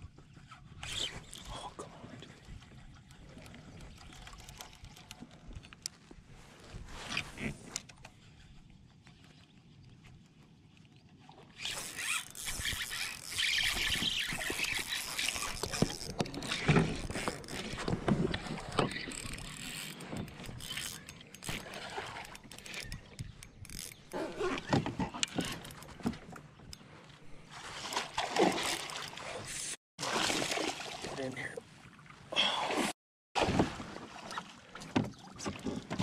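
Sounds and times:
fishing reel cranking: 11.6 - 17.6, 18.9 - 24.2
fishing line rasping: 11.6 - 17.8, 18.6 - 24.7
water splashing: 21.4 - 22.8, 27.5 - 36.0.

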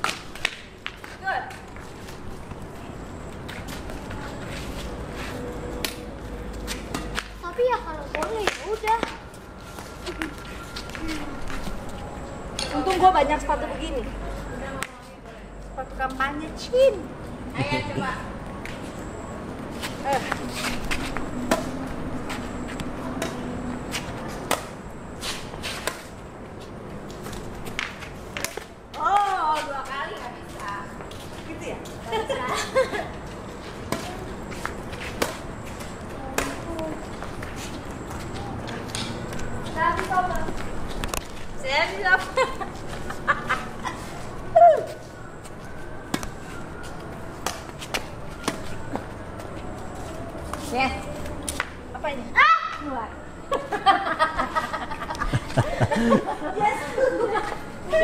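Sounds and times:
shuffling footsteps on court: 0.8 - 6.9
rackets hitting shuttlecock: 5.8 - 6.0, 21.4 - 21.8, 24.3 - 24.8
rackets striking shuttlecock: 5.8 - 6.0, 20.1 - 21.8, 24.0 - 26.1.

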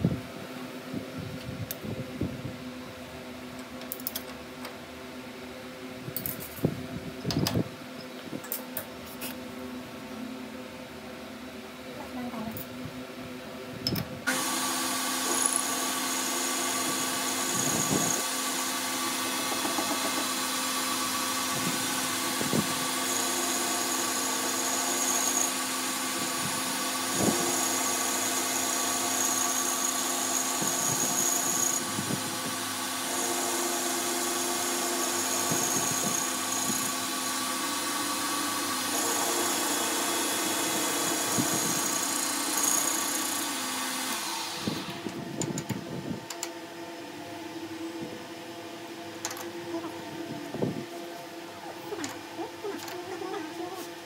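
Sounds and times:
high thin cutting whine: 14.3 - 32.3
metal lathe running: 14.3 - 45.0.

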